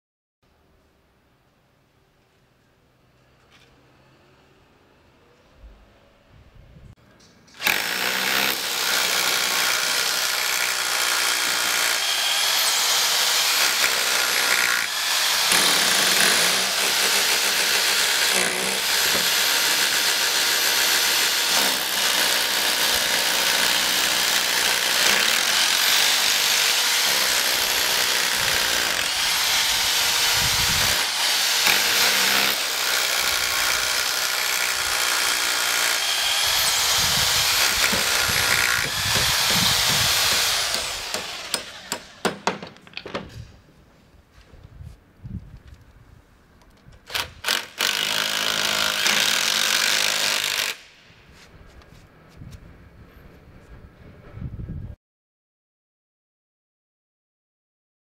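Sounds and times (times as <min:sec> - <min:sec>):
electric drills boring into concrete: 0:07.6 - 0:42.3, 0:47.1 - 0:50.8.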